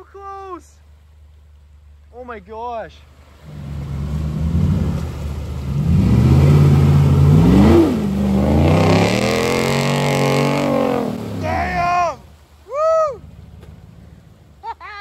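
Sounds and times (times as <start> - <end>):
mud and water splashing: 0.0 - 15.0
truck engine revving: 3.4 - 12.0.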